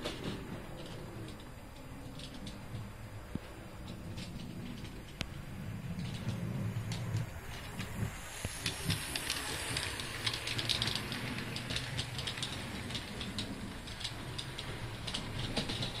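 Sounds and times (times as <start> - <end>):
steady hiss: 0.0 - 16.0
model train wheel clicks: 3.8 - 16.0.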